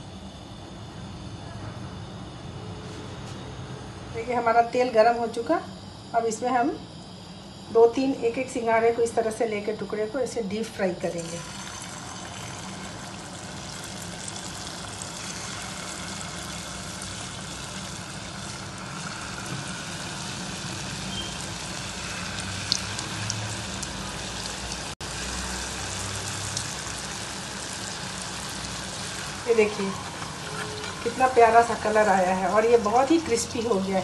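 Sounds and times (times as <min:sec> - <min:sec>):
deep-frying sizzle with pops: 0:11.3 - 0:34.0.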